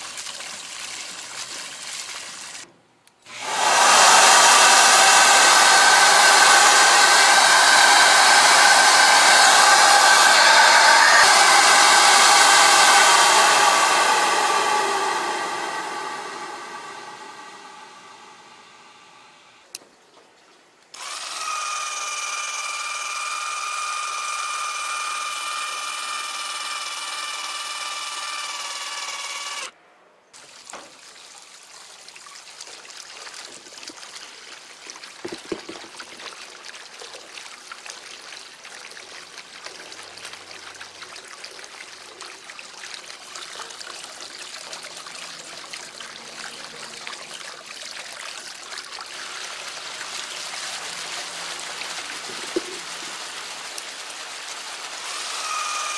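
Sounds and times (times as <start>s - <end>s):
water trickling across a rug: 0.0s - 2.6s, 30.4s - 55.1s
high-pitched whine: 3.8s - 19.6s.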